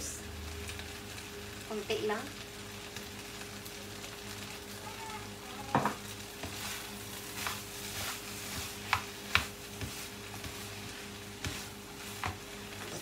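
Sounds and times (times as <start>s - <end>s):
rice sizzling in a frying pan: 0.0s - 13.0s
spatula scraping a pan: 6.4s - 13.0s.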